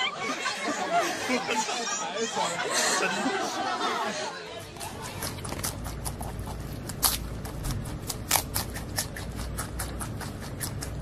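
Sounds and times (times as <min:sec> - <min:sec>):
low steady hum: 0:00.0 - 0:11.0
panda crunching bamboo: 0:04.8 - 0:11.0.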